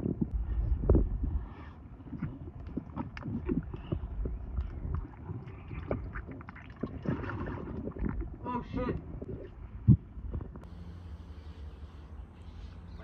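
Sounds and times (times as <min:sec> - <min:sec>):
underwater low rumble: 0:00.0 - 0:13.0
water and bubbles clicking: 0:02.0 - 0:10.6.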